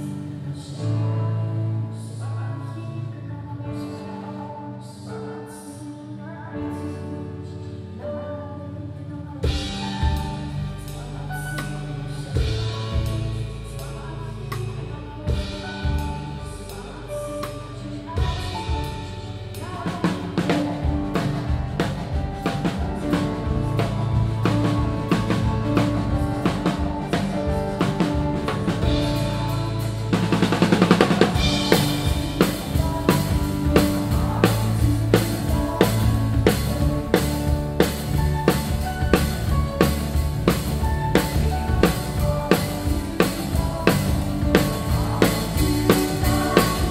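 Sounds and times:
backing music: 0.0 - 5.8, 6.5 - 46.9
bass drum: 9.4 - 46.9.

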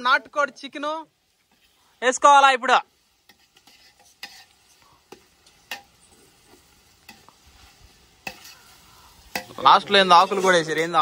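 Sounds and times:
faint sizzle: 0.0 - 11.0
ladle scraping metal pot: 3.2 - 6.0, 8.2 - 10.9.

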